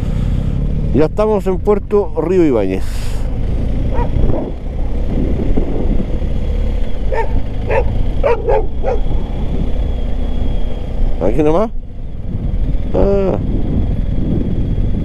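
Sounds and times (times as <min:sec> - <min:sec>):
motorcycle engine running: 0:00.0 - 0:15.0
wind noise: 0:03.8 - 0:15.0
dog barking: 0:03.9 - 0:04.5, 0:07.1 - 0:09.2.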